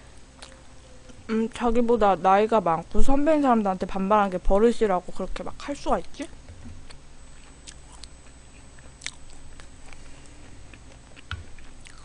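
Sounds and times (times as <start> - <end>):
chewing: 0.4 - 1.2, 6.9 - 12.0.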